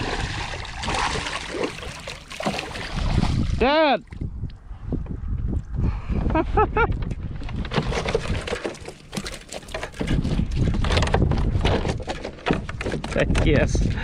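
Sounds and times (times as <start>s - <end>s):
fish thrashing in a net: 0.0s - 3.5s, 7.7s - 11.0s
water splashing: 0.0s - 4.3s
wind buffeting microphone: 0.0s - 14.0s
clattering knocks against hull: 6.9s - 13.9s.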